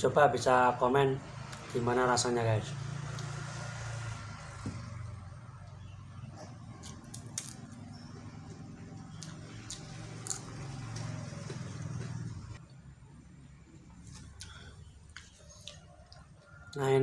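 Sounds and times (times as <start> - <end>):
cracker crunching and chewing: 6.5 - 12.5, 14.0 - 16.8.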